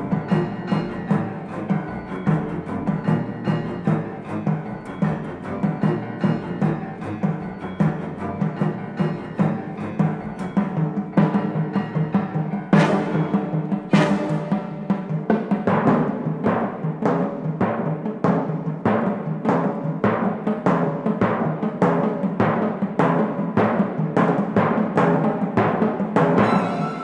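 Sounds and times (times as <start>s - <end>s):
film score music: 0.0s - 24.0s, 24.6s - 27.0s.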